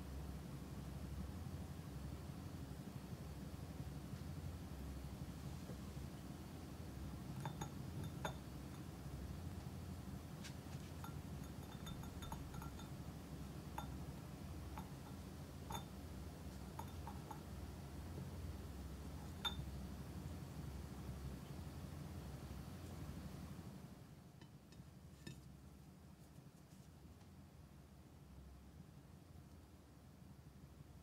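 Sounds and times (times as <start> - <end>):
steady low hum: 0.0 - 31.0
wooden rod tapping ceramic: 7.4 - 8.5, 11.0 - 13.0, 13.8 - 14.0, 14.7 - 15.9, 16.6 - 17.5.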